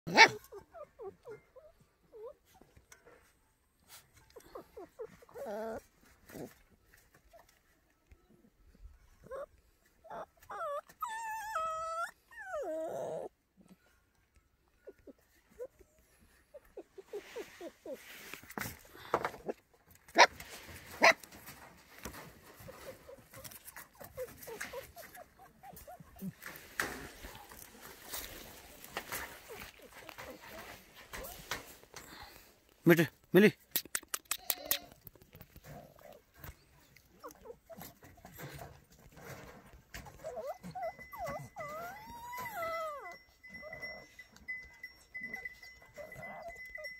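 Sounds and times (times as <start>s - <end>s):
puppy whimpering: 0.1s - 2.9s, 4.0s - 6.5s, 8.9s - 13.8s, 14.6s - 18.0s, 22.1s - 32.4s, 34.1s - 46.9s.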